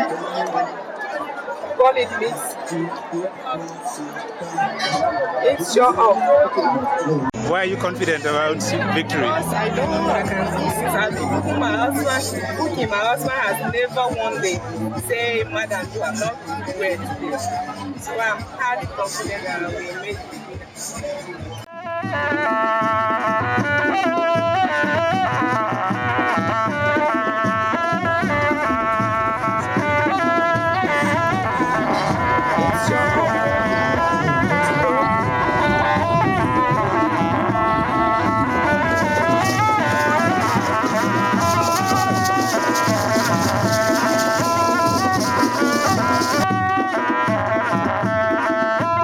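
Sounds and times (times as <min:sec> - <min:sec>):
drums and percussion: 0:04.8 - 0:49.0
high wind instrument melody: 0:06.6 - 0:13.4, 0:21.6 - 0:49.0.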